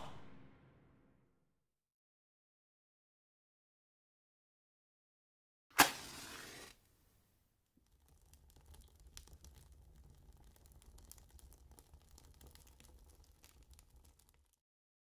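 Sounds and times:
burning match crackling: 0:05.8 - 0:06.9, 0:07.8 - 0:14.6.

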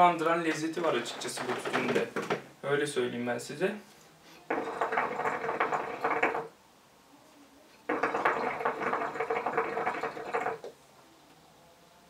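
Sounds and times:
hookah water bubbling: 0:04.5 - 0:06.6, 0:07.9 - 0:10.8.

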